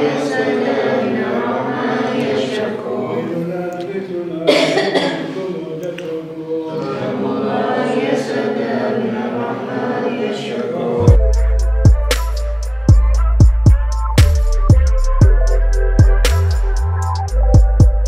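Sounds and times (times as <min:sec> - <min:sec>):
group chanting prayers: 0:00.0 - 0:11.2
person coughing: 0:04.5 - 0:05.4.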